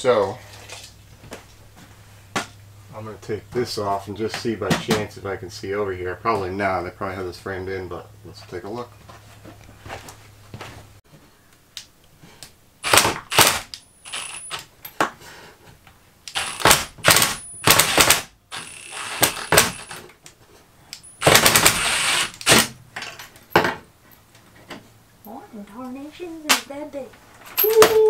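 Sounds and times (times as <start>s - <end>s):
impact driver hammering: 12.8s - 14.3s, 16.3s - 20.0s, 21.2s - 22.8s.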